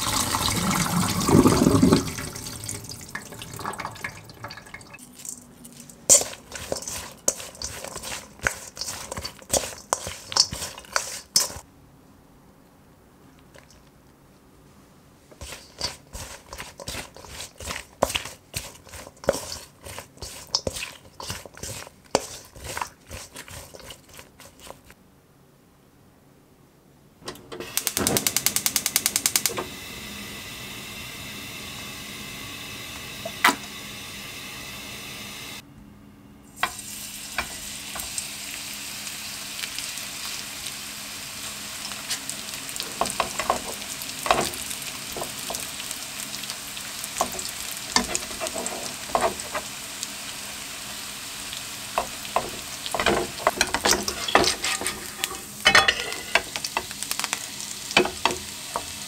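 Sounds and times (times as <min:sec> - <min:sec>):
wooden spoon clacking in metal bowl: 0:04.1 - 0:11.6, 0:52.0 - 0:56.9
gas burner hissing: 0:27.2 - 0:35.6, 0:36.6 - 0:59.0
gas stove igniter clicking: 0:27.3 - 0:29.8, 0:32.9 - 0:33.7.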